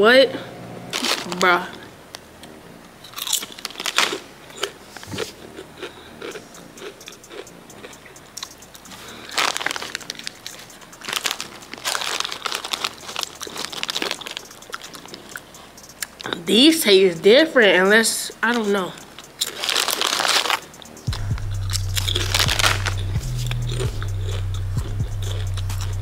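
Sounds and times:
chip bag crinkling: 0:00.9 - 0:01.8, 0:03.0 - 0:16.4, 0:18.4 - 0:21.0, 0:21.7 - 0:24.4
potato chips crunching: 0:00.9 - 0:01.9, 0:03.0 - 0:16.4, 0:18.2 - 0:26.0.

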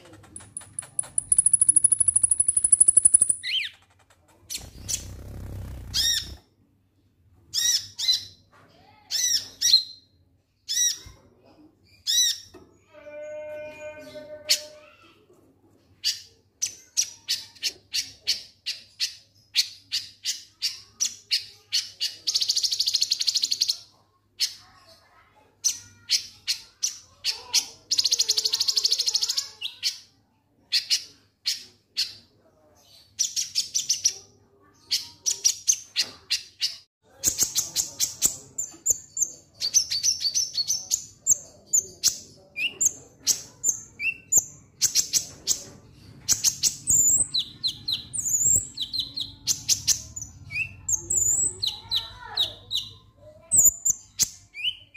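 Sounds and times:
sunbird high chirps: 0:00.8 - 0:03.7
bird buzzy trills: 0:04.5 - 0:06.4.

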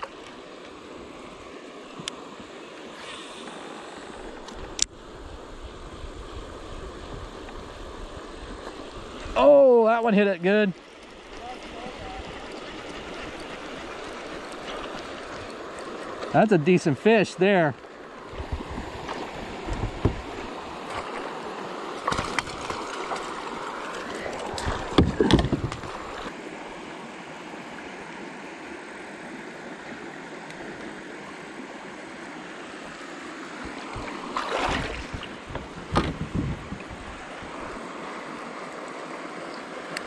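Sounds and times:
water moving around a kayak: 0:00.0 - 0:40.0
wind on microphone: 0:04.6 - 0:09.4, 0:18.2 - 0:20.8, 0:24.2 - 0:26.3, 0:33.6 - 0:37.8
water splashes: 0:08.3 - 0:26.9, 0:29.8 - 0:40.0
knocks on kayak: 0:19.7 - 0:20.2, 0:24.6 - 0:25.9, 0:34.7 - 0:36.5.

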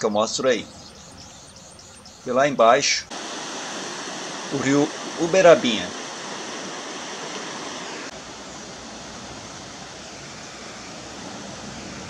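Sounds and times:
water rushing over rocks: 0:03.1 - 0:10.4.

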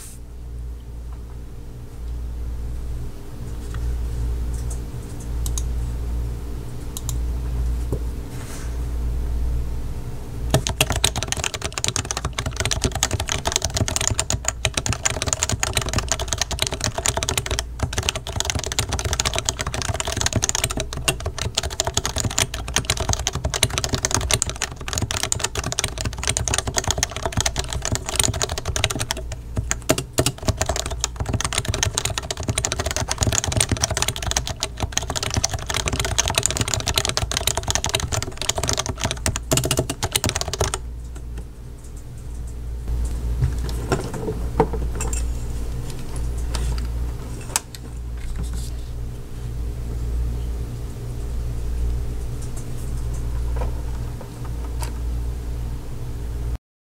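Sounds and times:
keyboard typing: 0:10.5 - 0:40.8.

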